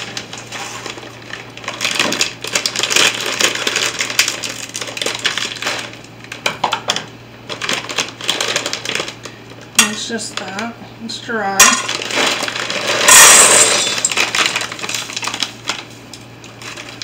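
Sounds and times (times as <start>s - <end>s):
plastic bag crinkling: 0.0s - 6.4s, 7.4s - 9.4s, 11.7s - 17.0s
dry cubes rattling in bag: 0.4s - 6.0s, 7.5s - 9.2s, 11.8s - 15.8s.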